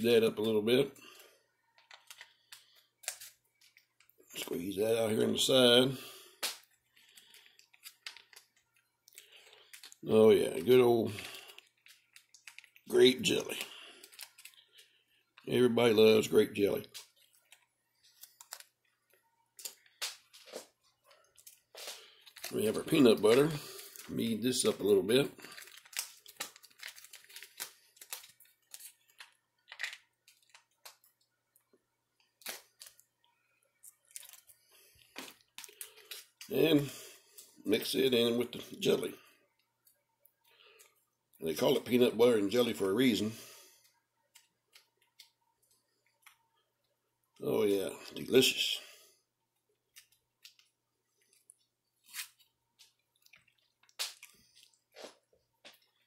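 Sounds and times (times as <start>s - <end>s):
plastic pouch crinkling: 6.4s - 31.3s, 33.8s - 36.5s.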